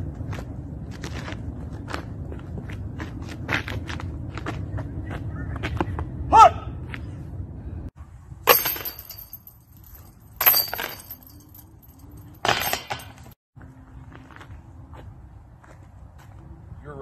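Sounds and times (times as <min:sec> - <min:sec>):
discs hitting metal chains: 0:08.5 - 0:13.4.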